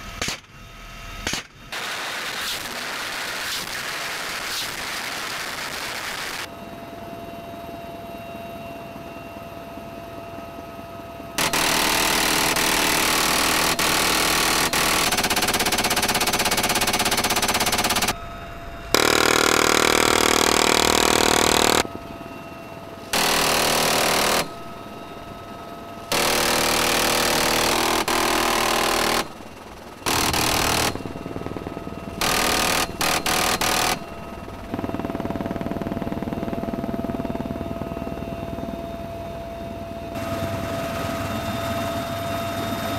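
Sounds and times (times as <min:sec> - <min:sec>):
helicopter turbine and rotor: 0:00.0 - 0:42.9
minigun firing bursts: 0:11.4 - 0:18.2, 0:18.9 - 0:21.9, 0:23.0 - 0:25.3, 0:26.0 - 0:37.4.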